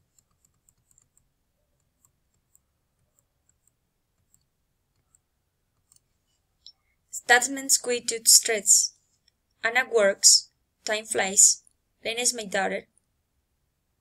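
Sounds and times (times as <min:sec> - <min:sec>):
mouse scroll wheel clicks: 0:00.0 - 0:06.1.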